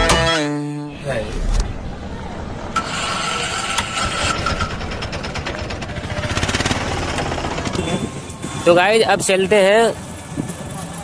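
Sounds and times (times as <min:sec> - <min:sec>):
road and wind noise: 0:01.0 - 0:11.0
motorcycle engine running: 0:03.1 - 0:11.0.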